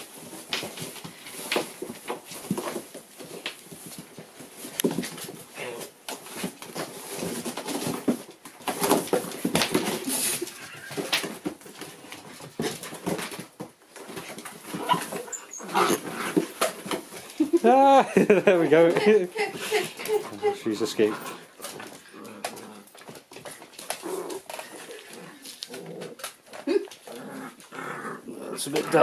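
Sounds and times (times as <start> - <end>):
cardboard rustling: 0.0 - 27.7
claws scrabbling: 0.0 - 29.0
puppies whining and yapping: 10.2 - 11.2, 14.6 - 16.9.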